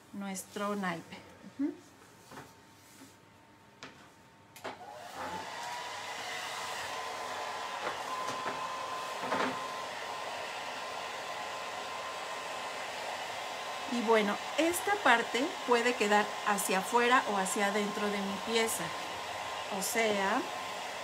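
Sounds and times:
hot-air dryer blowing: 0:04.6 - 0:21.0.

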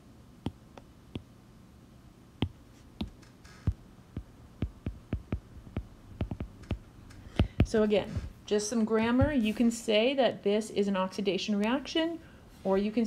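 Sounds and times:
faint low hum: 0:00.0 - 0:13.0
stylus tapping on glass screen: 0:02.4 - 0:08.3.

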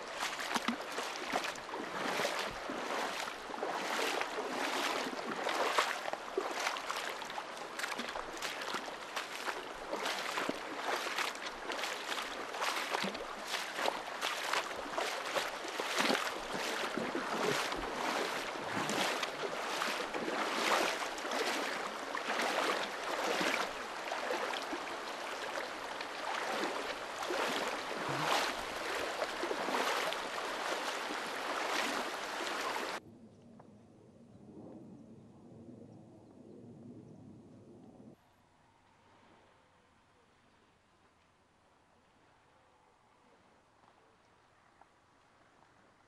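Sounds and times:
stream water splashing over stones: 0:00.0 - 0:33.0.

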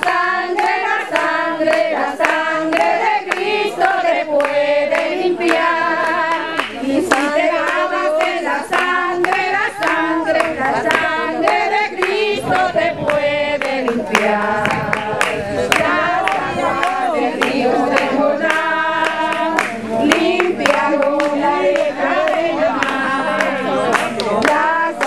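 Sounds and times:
group singing: 0:00.0 - 0:25.0
hand clapping: 0:00.0 - 0:25.0.

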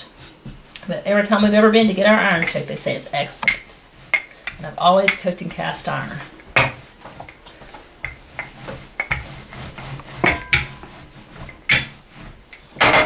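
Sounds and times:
rolling pin knocking on wooden table: 0:10.2 - 0:10.9.

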